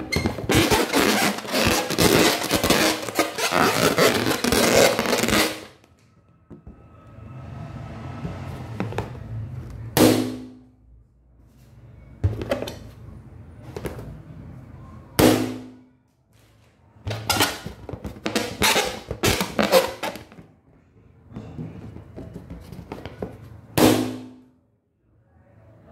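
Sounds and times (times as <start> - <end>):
balloons popping: 0.0 - 5.8, 17.3 - 20.4, 23.8 - 24.4
balloons crackling and rustling: 0.0 - 5.9, 17.4 - 20.4.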